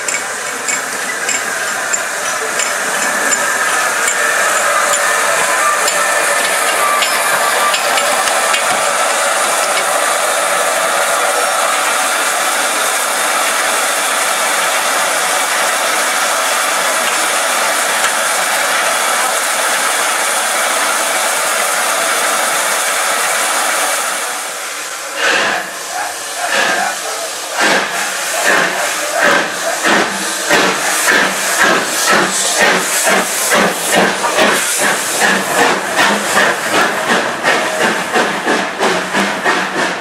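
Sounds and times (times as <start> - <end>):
steam hissing from locomotive: 0.0 - 40.0.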